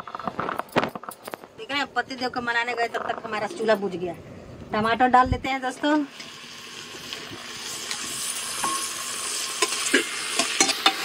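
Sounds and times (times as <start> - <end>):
tomatoes sizzling in hot oil: 5.5 - 11.0
steel spoon scraping pot: 7.8 - 11.0.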